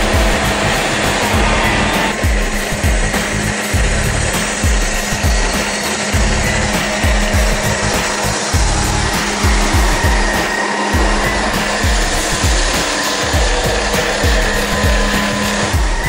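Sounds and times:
electronic music with kick drum: 0.0s - 16.0s.

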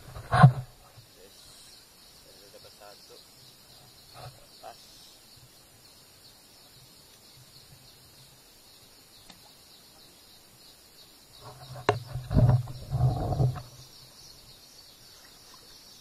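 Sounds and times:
low thumps and knocking: 11.4s - 13.8s.

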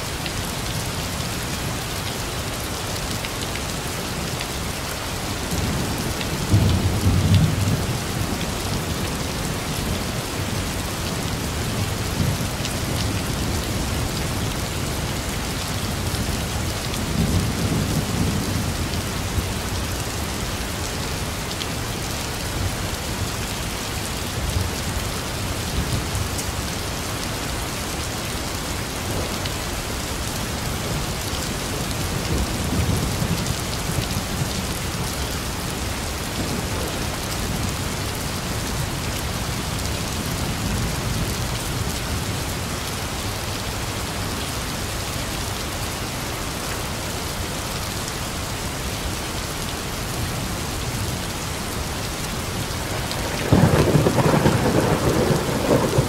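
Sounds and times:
heavy rain: 0.0s - 56.0s
thunder rumbling: 52.9s - 56.0s
sharp thunderclap: 53.2s - 56.0s.

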